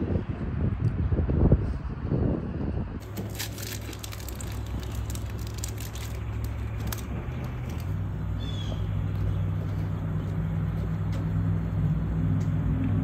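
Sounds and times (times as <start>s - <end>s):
low mechanical hum: 0.1s - 13.0s.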